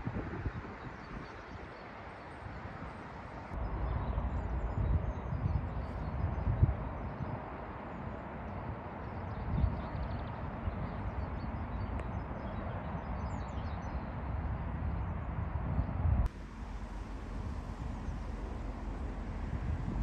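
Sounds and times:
low rumbling wind gusts: 0.0s - 20.0s
outdoor background rush: 0.0s - 20.0s.

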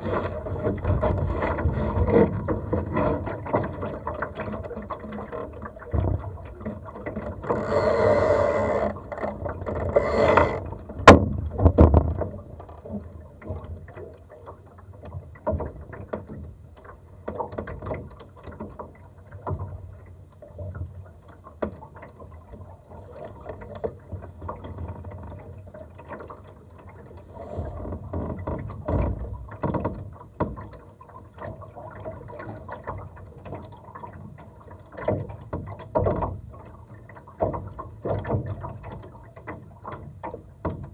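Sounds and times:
boat rigging knocks and rattles: 0.0s - 40.9s
water lapping against hull: 0.0s - 40.9s.

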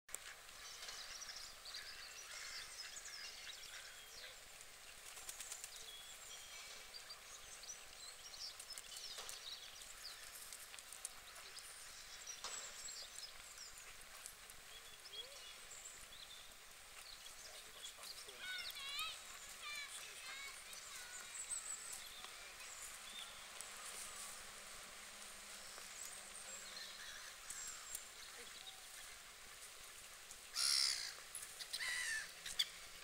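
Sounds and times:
small birds chirping: 0.1s - 33.0s.

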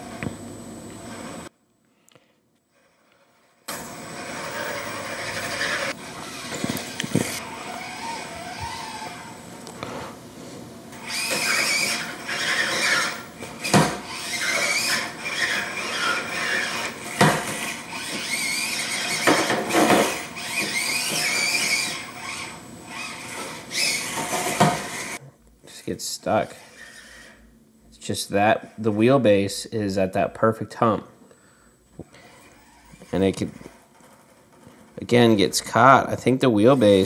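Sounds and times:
small electric motor whining: 2.7s - 10.0s, 10.9s - 25.2s, 26.4s - 27.6s, 32.0s - 35.1s
tyres scrabbling on wood: 11.1s - 25.2s.

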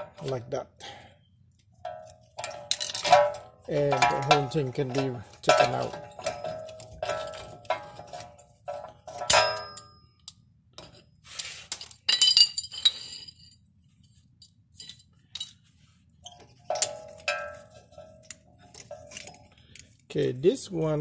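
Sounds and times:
metal brake springs clinking: 1.8s - 11.0s, 14.4s - 20.0s.

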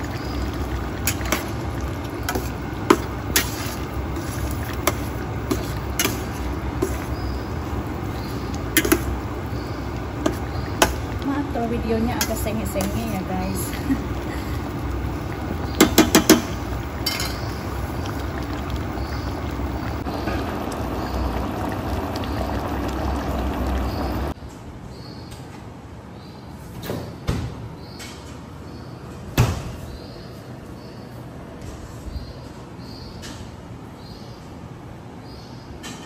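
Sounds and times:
sauce bubbling in a pan: 0.0s - 24.4s.

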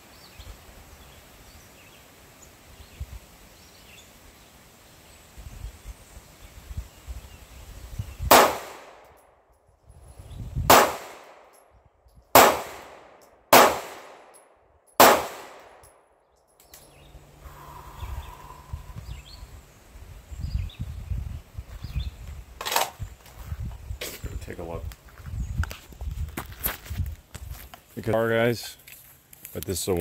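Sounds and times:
pistol shots: 8.3s - 9.1s, 10.7s - 11.5s, 12.3s - 14.4s, 15.0s - 15.9s.

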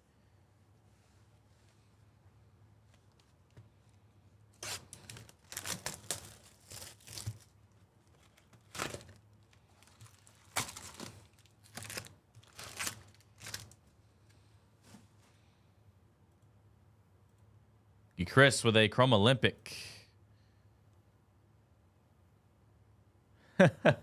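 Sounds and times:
cardboard box tearing open: 4.6s - 7.5s, 8.6s - 9.2s
foil packs crinkling: 4.6s - 14.0s.

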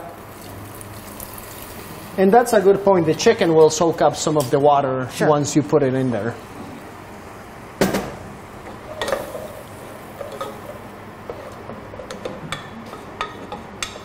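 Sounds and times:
utensil clanking against pot: 7.8s - 9.5s, 10.2s - 14.0s
utensil scraping pot: 8.6s - 12.3s.

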